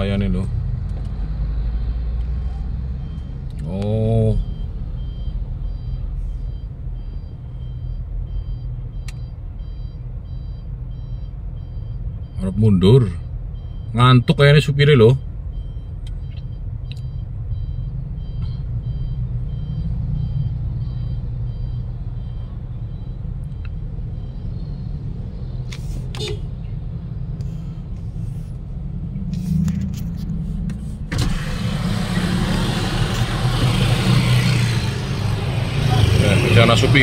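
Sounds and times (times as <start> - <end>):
car engine idling: 27.4 - 37.0.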